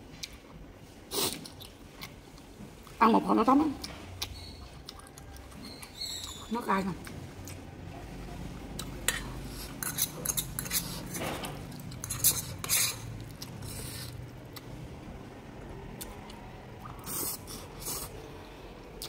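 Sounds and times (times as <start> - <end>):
metal fork scraping a pot: 9.8 - 11.2, 12.0 - 13.1.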